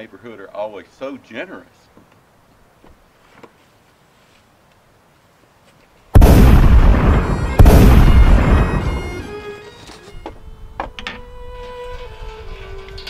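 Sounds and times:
loud gunshots echoing: 6.2s - 9.4s.

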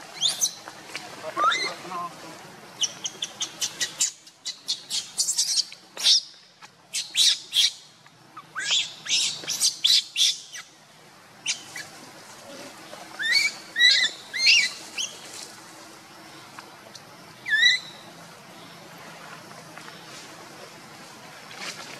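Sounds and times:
baby monkey squeaking: 0.2s - 0.6s, 1.4s - 1.8s, 2.8s - 6.3s, 8.4s - 10.7s, 13.2s - 15.1s, 17.4s - 17.9s
monkey squeals: 1.4s - 1.8s, 13.2s - 15.1s, 17.4s - 17.8s.

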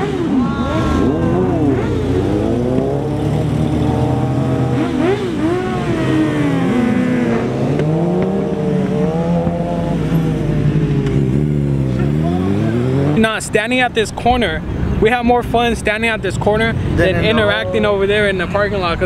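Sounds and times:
motorcycles accelerating past: 0.0s - 13.3s.

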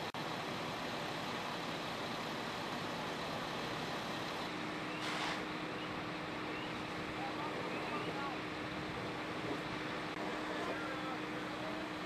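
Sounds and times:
fire truck engines running: 0.0s - 12.0s
brief hiss: 4.9s - 5.5s.

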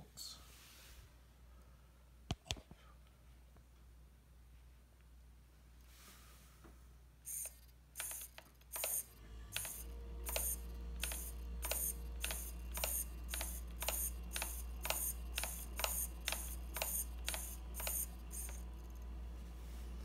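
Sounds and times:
steady low hum: 6.8s - 20.0s
servo whirring and clicking: 7.3s - 19.1s.

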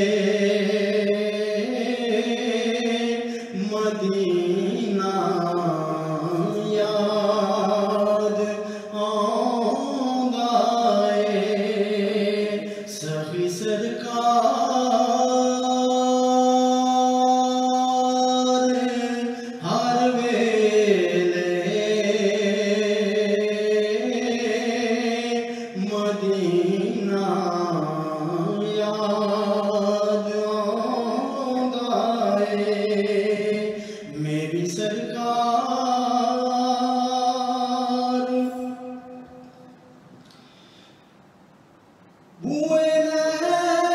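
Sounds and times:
man singing devotional song: 0.0s - 39.7s, 42.4s - 43.9s.

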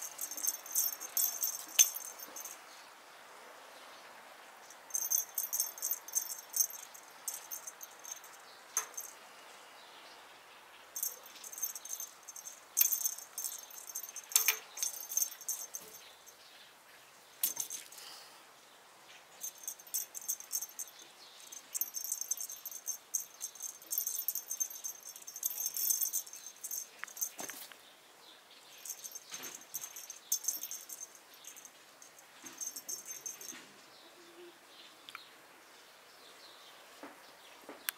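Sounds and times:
cat wand toy rattling: 0.0s - 2.6s, 4.7s - 9.2s, 11.0s - 16.2s, 17.4s - 18.0s, 19.4s - 27.7s, 28.8s - 33.6s.

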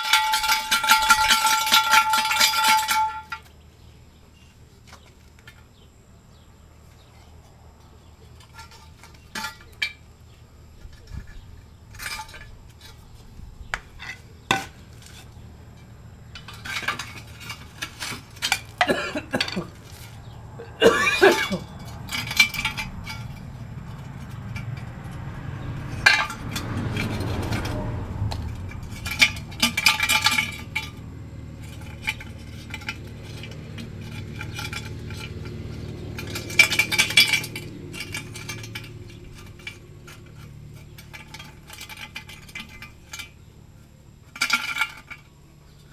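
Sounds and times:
hand tools knocking on metal: 20.8s - 31.0s
low rumble: 21.6s - 40.4s.

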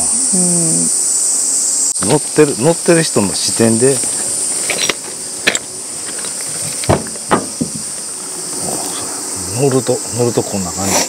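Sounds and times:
insects droning: 0.0s - 11.0s
sharp knocks and clicks: 6.8s - 8.0s.

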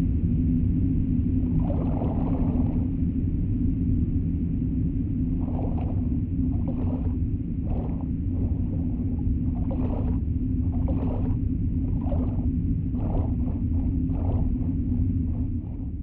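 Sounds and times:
dark ambient drone: 0.0s - 16.0s
muffled moaning swells: 5.0s - 16.0s.

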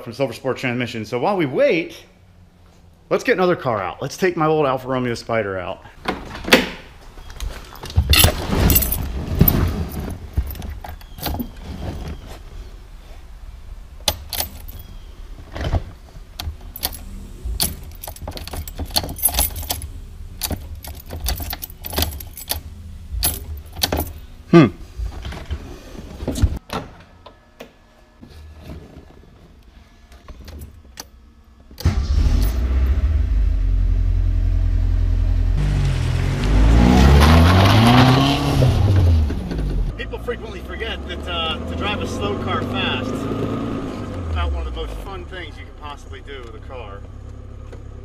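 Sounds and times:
car engine starting and running: 6.0s - 26.6s, 30.3s - 48.0s
keys jangling in ignition: 7.7s - 11.6s, 14.0s - 15.0s, 16.4s - 24.3s
engine revving: 16.2s - 25.3s, 31.8s - 45.8s.

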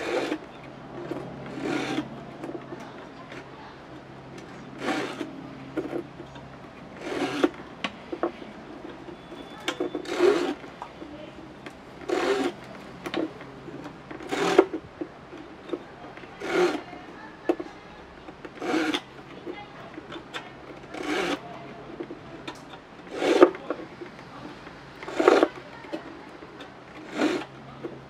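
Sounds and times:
hand file rasping on bamboo: 0.0s - 0.5s, 1.4s - 2.2s, 4.8s - 5.3s, 7.0s - 7.6s, 10.0s - 10.6s, 12.0s - 12.7s, 14.2s - 14.7s, 16.4s - 17.0s, 18.6s - 19.1s, 20.9s - 21.4s, 23.1s - 23.6s, 25.0s - 25.6s, 27.0s - 27.6s.

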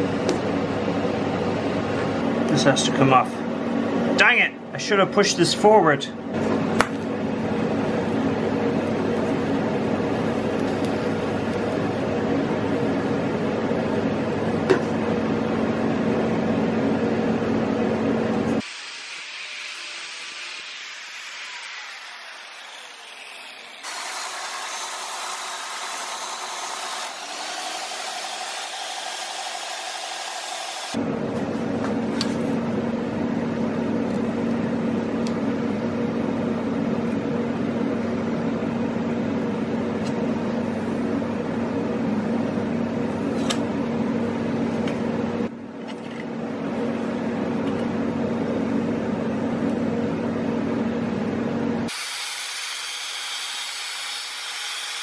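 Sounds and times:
power tool grinding metal: 18.6s - 31.0s, 51.9s - 55.0s.

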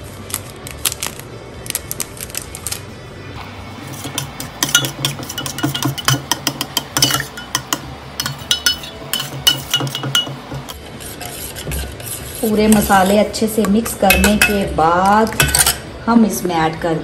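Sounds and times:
spoon clinking against steel bowl: 3.9s - 10.8s, 13.8s - 14.7s, 15.3s - 15.9s.

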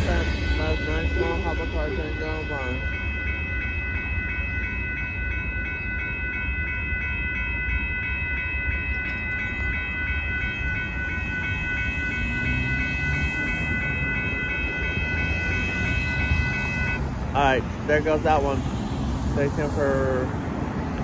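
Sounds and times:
crossing warning bell ringing: 0.0s - 21.0s
freight train rumbling past: 0.0s - 21.0s
car driving over crossing: 9.1s - 21.0s.

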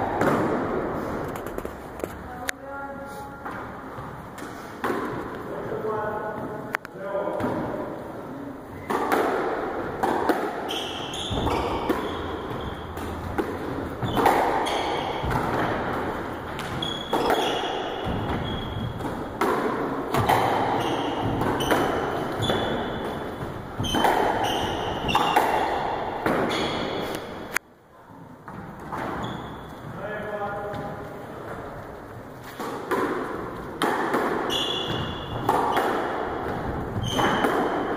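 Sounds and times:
squash ball hits echoing: 0.0s - 2.3s, 3.4s - 6.0s, 7.2s - 8.0s, 8.7s - 27.6s, 28.4s - 31.0s, 32.4s - 37.9s
shoes squeaking on wooden floor: 10.6s - 27.4s, 28.5s - 30.1s, 34.4s - 37.8s.

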